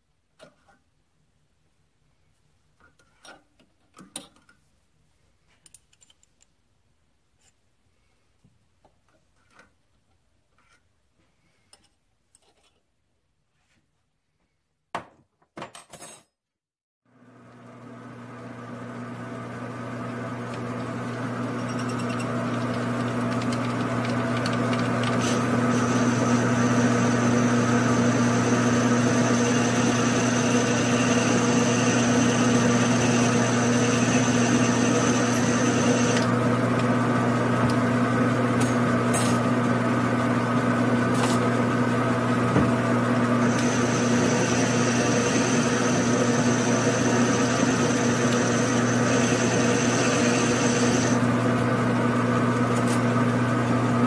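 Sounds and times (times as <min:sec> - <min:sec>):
metal lathe humming: 0:19.5 - 0:38.0, 0:43.2 - 0:51.5
drill boring into brass: 0:21.5 - 0:36.3, 0:43.4 - 0:51.2.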